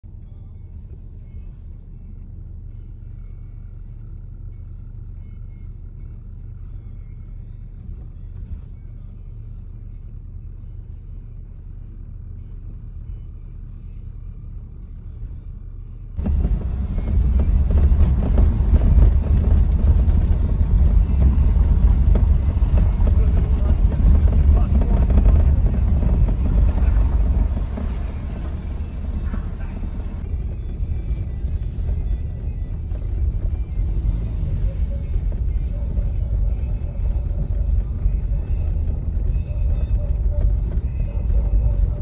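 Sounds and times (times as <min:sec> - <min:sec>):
car road rumble from inside: 0:00.0 - 0:42.0
rushing wind and road noise: 0:16.2 - 0:42.0.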